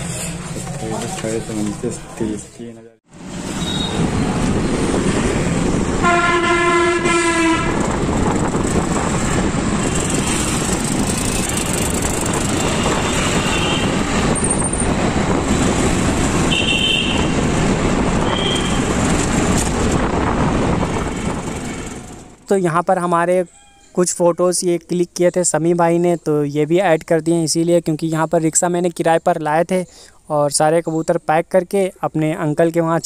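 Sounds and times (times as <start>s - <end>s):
road and wind noise: 0.0s - 33.0s
vehicle horn: 6.0s - 7.9s, 12.7s - 14.0s, 16.5s - 17.4s, 18.2s - 18.9s
short high horn beeps: 23.5s - 24.0s.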